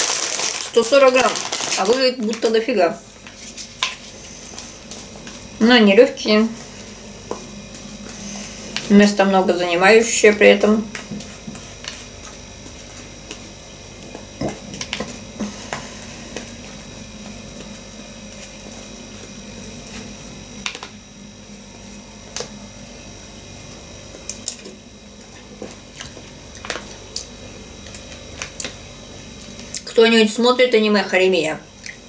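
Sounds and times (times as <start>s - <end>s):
steady low hum: 0.0s - 32.0s
quiet chewing: 24.2s - 28.8s.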